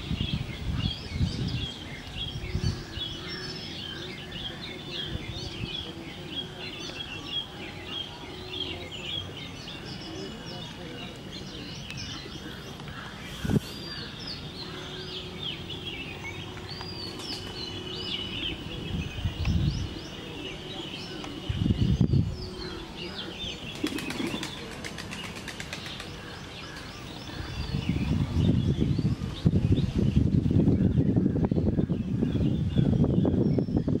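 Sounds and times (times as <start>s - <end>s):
small birds chirping: 0.0s - 34.0s
pigeon wings flapping: 23.8s - 26.1s.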